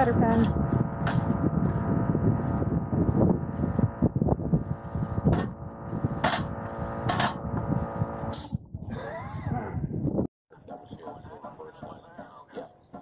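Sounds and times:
small engine running: 0:00.0 - 0:08.5
uneven low rumble: 0:00.0 - 0:08.6.

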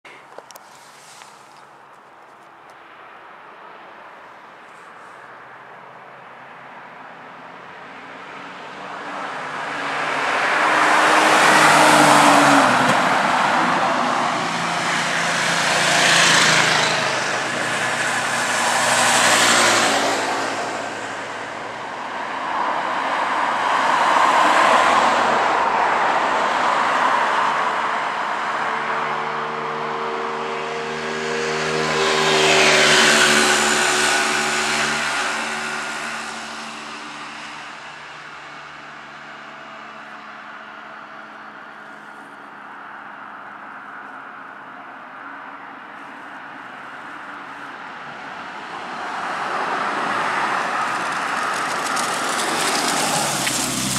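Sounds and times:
cars driving past: 0:02.7 - 0:53.9
car engine accelerating by: 0:49.1 - 0:53.9.

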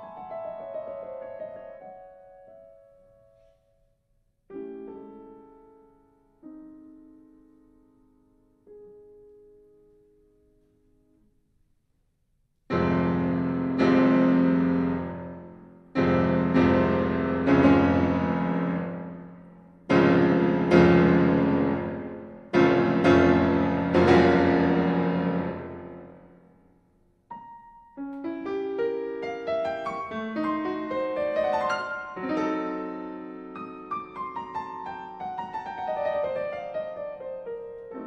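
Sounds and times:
piano chords ringing: 0:12.7 - 0:38.0.

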